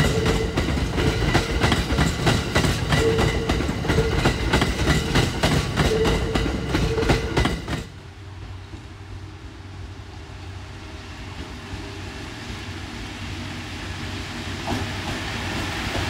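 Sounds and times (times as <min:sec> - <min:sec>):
wheels clicking over rail joints: 0:00.0 - 0:08.0
train passing at speed: 0:00.0 - 0:16.0.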